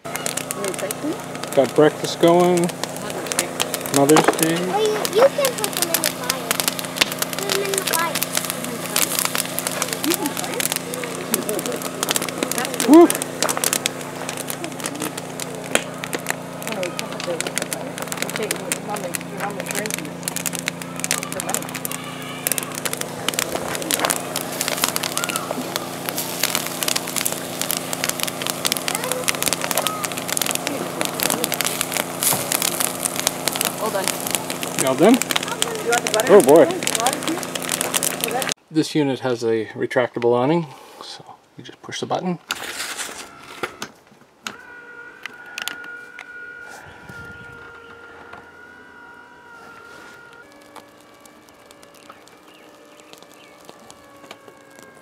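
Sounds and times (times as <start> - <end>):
electric motor whining: 0.0 - 38.6, 42.5 - 55.0
steady low hum: 0.0 - 39.2
campfire wood crackling: 0.0 - 55.0.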